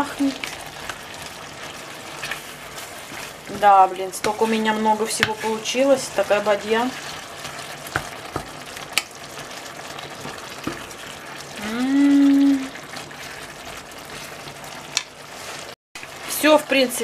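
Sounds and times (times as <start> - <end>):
food sizzling in a frying pan: 0.0 - 17.0
person humming a note: 11.6 - 12.7.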